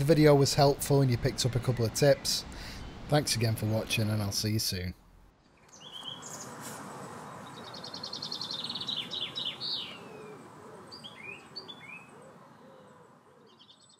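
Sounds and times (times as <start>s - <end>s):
birds singing: 0.0s - 4.3s, 5.5s - 13.9s
steady background hiss: 0.0s - 13.9s.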